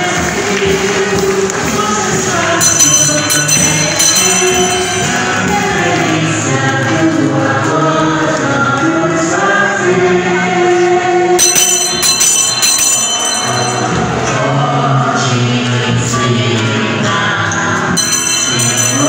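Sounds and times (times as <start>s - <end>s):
congregation singing a hymn: 0.0s - 19.0s
musical accompaniment: 0.0s - 19.0s
bells ringing: 2.5s - 5.9s, 11.4s - 14.4s, 17.9s - 19.0s.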